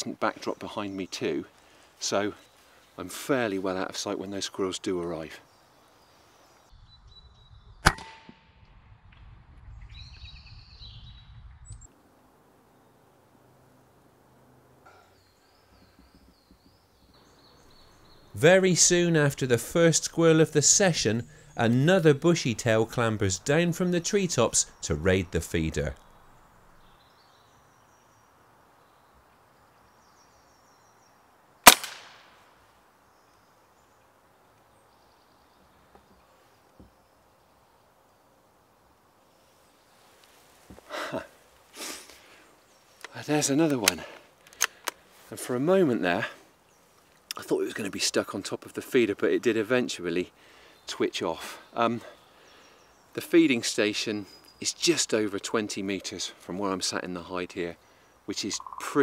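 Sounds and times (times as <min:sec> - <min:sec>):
small birds chirping: 0:00.0 - 0:07.9, 0:09.6 - 0:31.7, 0:32.7 - 0:59.0
air rifle shot: 0:07.8 - 0:09.2, 0:31.6 - 0:32.4.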